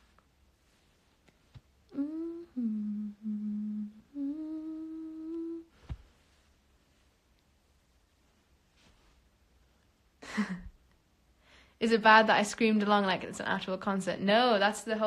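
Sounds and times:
woman humming a tune: 0:01.9 - 0:05.8.

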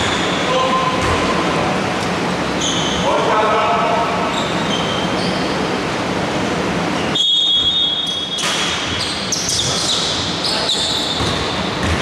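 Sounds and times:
basketball bouncing on wooden floor: 0:01.0 - 0:01.3, 0:11.2 - 0:12.0.

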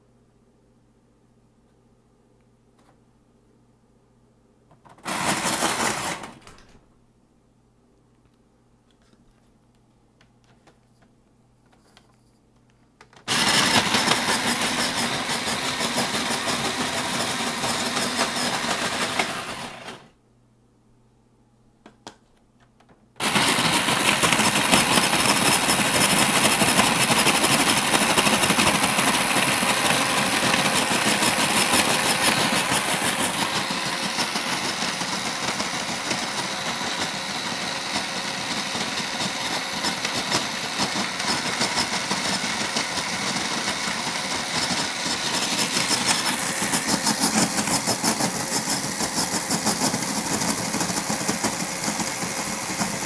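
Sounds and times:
snow cone machine shaving ice: 0:05.0 - 0:06.4, 0:13.3 - 0:20.1, 0:23.2 - 0:53.0.

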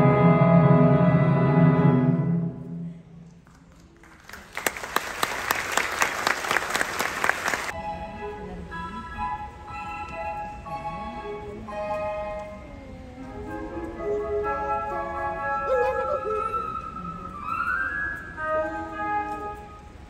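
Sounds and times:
audience applauding: 0:03.4 - 0:07.7.

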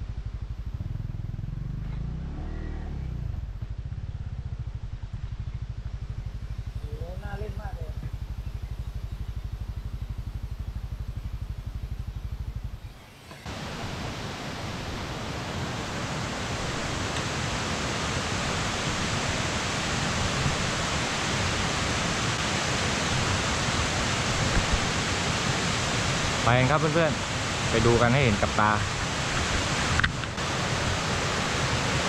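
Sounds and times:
motorcycle engine idling: 0:00.0 - 0:13.9
stream rapids rushing: 0:13.4 - 0:32.0.

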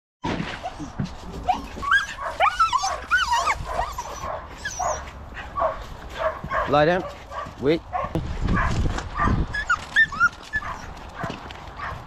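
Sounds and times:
dogs yipping and whining: 0:00.3 - 0:06.8, 0:08.0 - 0:12.0.

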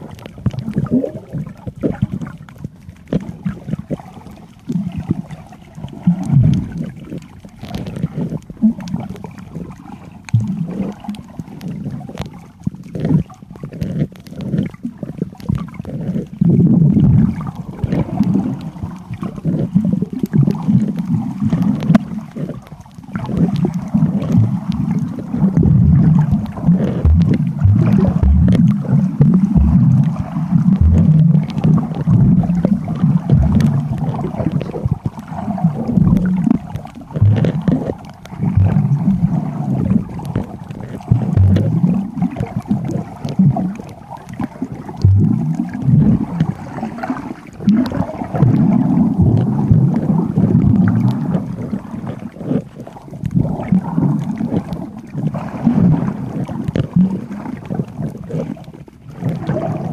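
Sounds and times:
clicks and knocks underwater: 0:00.0 - 0:59.9
underwater rumble of moving water: 0:00.0 - 0:59.9.

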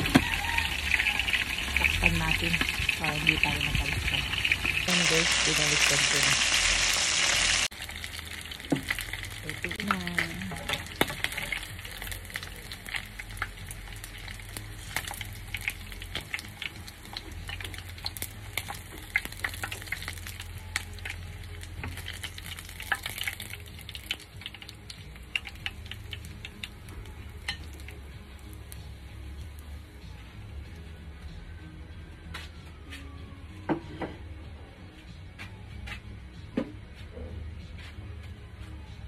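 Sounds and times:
chicken sizzling in hot oil: 0:00.0 - 0:29.6.

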